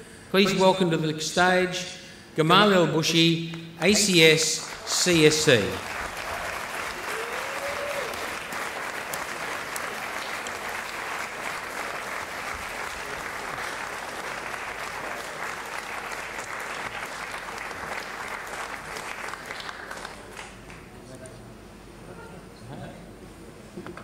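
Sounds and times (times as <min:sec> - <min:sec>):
audience applauding: 0:04.6 - 0:21.0.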